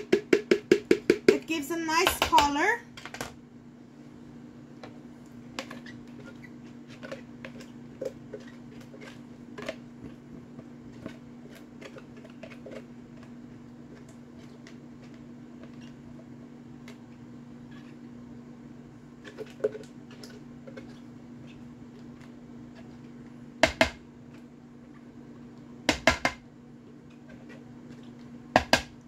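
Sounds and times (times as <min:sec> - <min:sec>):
steady low hum: 0:00.0 - 0:29.0
spatula scraping plastic bowl: 0:05.6 - 0:10.2, 0:10.9 - 0:13.3.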